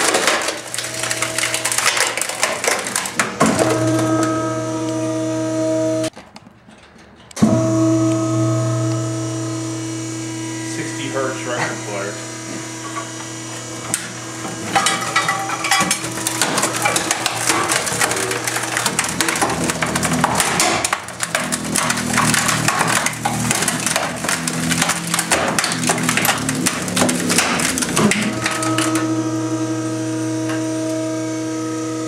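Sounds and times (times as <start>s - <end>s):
plastic and metal crunching: 0.0s - 8.0s, 10.8s - 29.5s
compactor motor hum: 7.4s - 32.0s.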